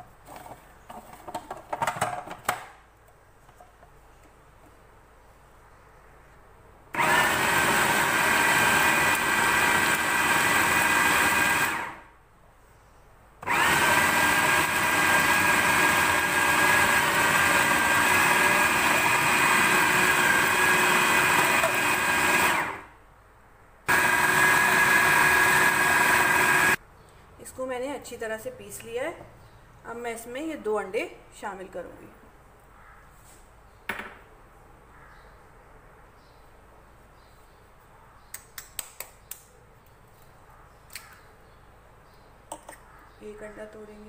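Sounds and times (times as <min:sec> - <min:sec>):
food processor motor grinding: 0:07.0 - 0:12.0, 0:13.4 - 0:22.9, 0:23.9 - 0:26.8.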